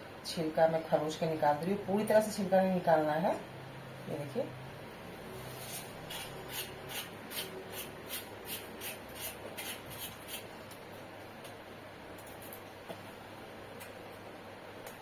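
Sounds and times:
knife scraping gourd skin: 5.5s - 10.5s.

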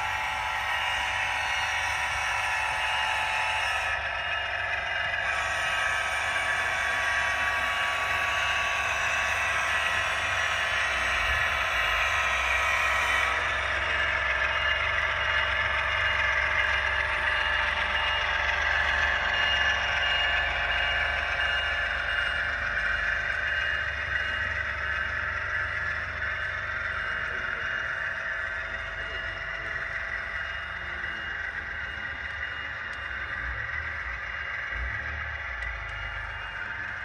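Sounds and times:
model train whirring and rattling: 0.0s - 37.0s.

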